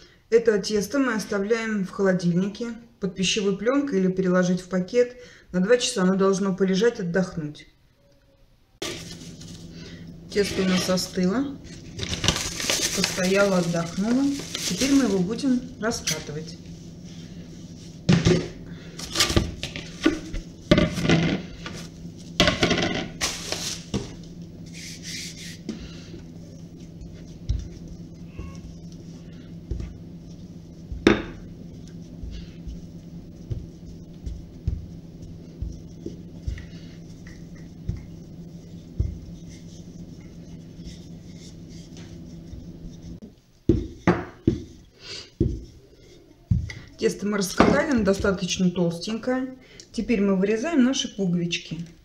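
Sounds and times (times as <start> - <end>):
steady low hum: 8.5 - 52.0
cling film crinkling: 11.8 - 15.3
rolling pin rolling over dough: 12.7 - 18.6, 23.9 - 49.1
kitchen items knocking on countertop: 19.4 - 21.4, 22.4 - 23.1, 43.7 - 44.7
hands slapping dough: 26.6 - 45.8.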